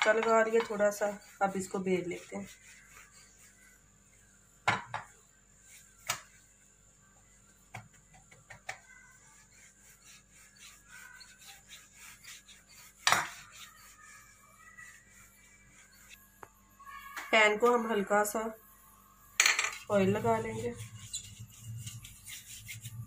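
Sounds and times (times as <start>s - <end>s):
rolling pin knocking on counter: 4.6s - 5.1s, 13.0s - 13.4s.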